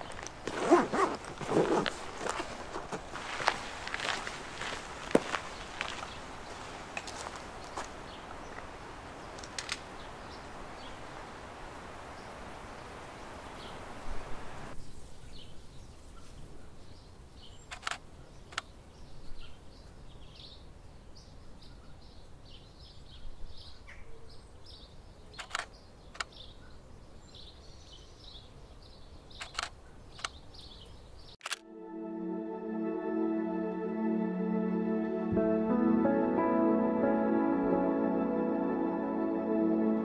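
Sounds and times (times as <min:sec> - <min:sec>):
small birds chirping: 0:00.0 - 0:31.4
outdoor hiss: 0:03.2 - 0:15.1
camera shutter clicks: 0:25.4 - 0:26.3, 0:29.4 - 0:30.4.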